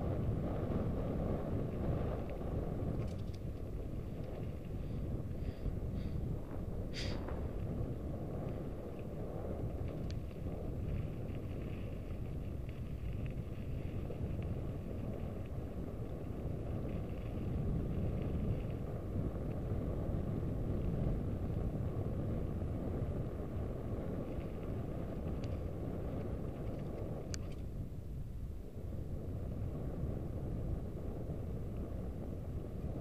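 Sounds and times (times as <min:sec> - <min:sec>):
wind buffeting microphone: 0:00.0 - 0:33.0
faint clicks: 0:02.2 - 0:04.7, 0:09.7 - 0:14.5, 0:24.3 - 0:27.7.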